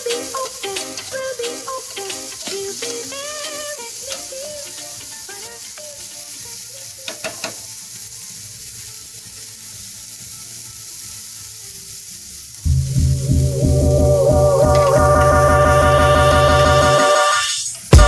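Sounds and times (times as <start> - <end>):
vegetables sizzling in hot oil: 0.0 - 18.0
loud music: 12.7 - 18.0.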